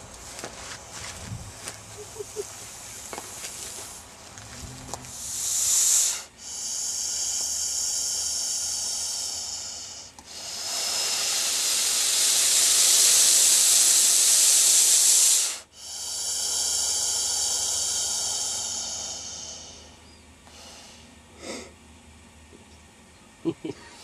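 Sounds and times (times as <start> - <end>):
snake hissing: 2.0 - 4.1, 5.1 - 21.7.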